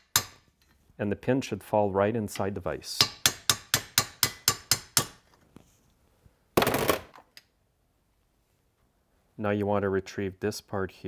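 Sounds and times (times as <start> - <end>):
hammer striking steel punch: 0.0 - 0.5, 3.0 - 5.2.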